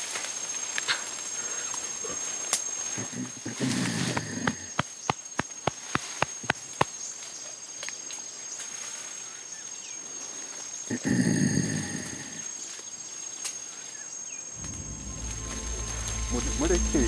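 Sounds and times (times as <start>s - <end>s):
faint insect whine: 0.0s - 17.0s
gorilla grunting call: 1.4s - 4.9s, 10.9s - 12.5s
hollow pops: 4.1s - 7.0s.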